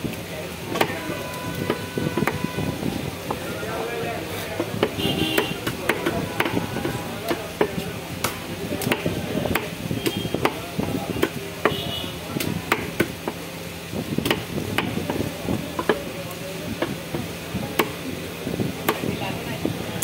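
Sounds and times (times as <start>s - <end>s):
market background hum: 0.0s - 20.0s
cleaver chopping on wooden block: 4.6s - 11.8s, 12.7s - 13.4s, 14.2s - 15.2s, 16.8s - 18.0s, 18.8s - 19.2s.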